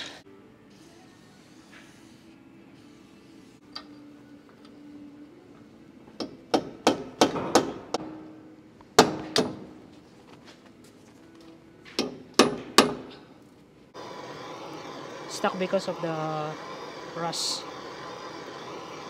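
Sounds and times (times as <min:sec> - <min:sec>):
hammer on steel punch clanking: 0:06.2 - 0:08.2, 0:09.0 - 0:09.8, 0:12.0 - 0:13.2.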